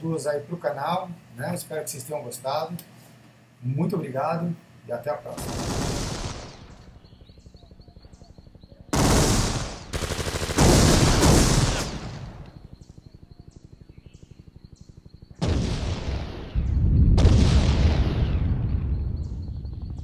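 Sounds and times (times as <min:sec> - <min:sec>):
automatic gunfire: 0:05.4 - 0:07.2, 0:08.9 - 0:12.6.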